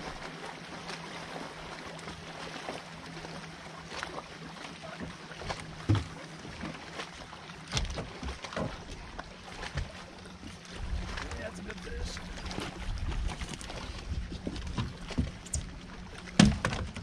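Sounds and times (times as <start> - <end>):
steady low hum: 0.0 - 17.0
knocks and thumps on boat: 3.9 - 17.0.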